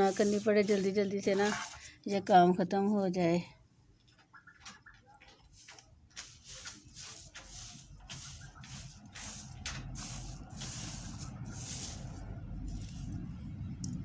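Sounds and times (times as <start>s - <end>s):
grains rustling by hand: 0.0s - 1.8s, 5.5s - 13.3s
wind rumble on microphone: 12.0s - 14.0s.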